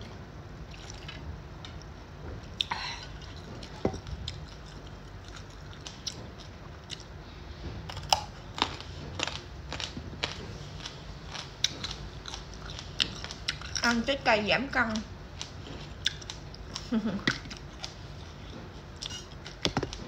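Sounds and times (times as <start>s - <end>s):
carrot crunching while chewed: 7.8s - 14.0s, 15.3s - 20.0s.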